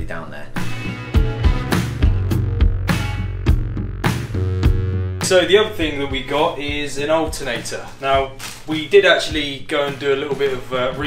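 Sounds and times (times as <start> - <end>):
guitar: 0.4 - 6.5
bass line: 0.6 - 6.8
drum hits: 0.6 - 8.4.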